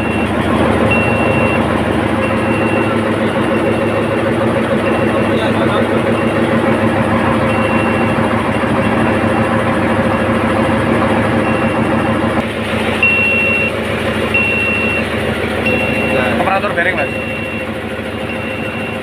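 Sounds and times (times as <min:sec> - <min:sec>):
marine diesel engines droning: 0:00.0 - 0:19.0
short high electronic beep: 0:13.0 - 0:13.7.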